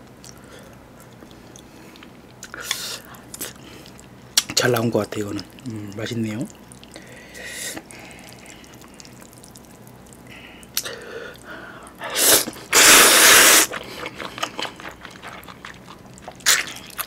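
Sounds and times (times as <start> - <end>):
wet chewing: 6.3 - 17.0
noodles slurped: 6.4 - 17.0.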